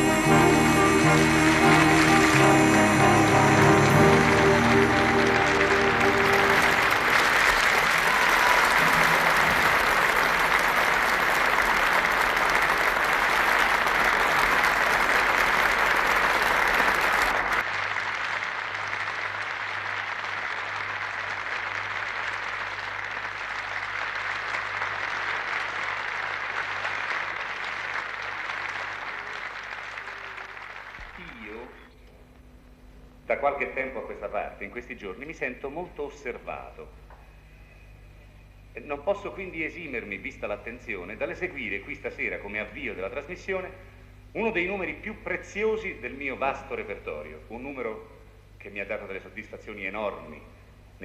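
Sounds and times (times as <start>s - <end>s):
studio audience applauding: 0.0s - 31.9s.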